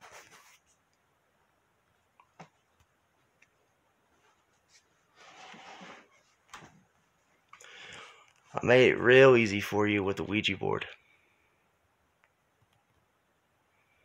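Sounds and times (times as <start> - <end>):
soft rustle: 0.0 - 1.1, 2.0 - 7.6.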